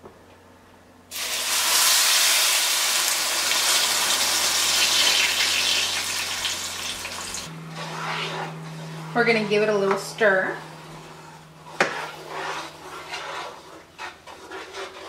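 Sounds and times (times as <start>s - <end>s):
sauce sizzling in hot oil: 1.1s - 7.5s.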